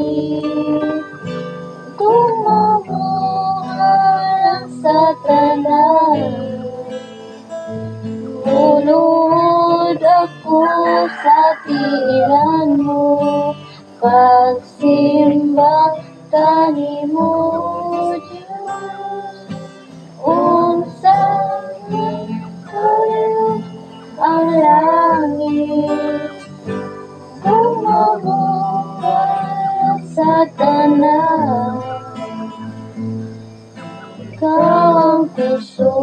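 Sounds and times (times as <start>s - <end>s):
woman singing: 0.0s - 7.2s, 8.0s - 32.8s, 34.2s - 36.0s
acoustic guitar strumming: 0.0s - 36.0s.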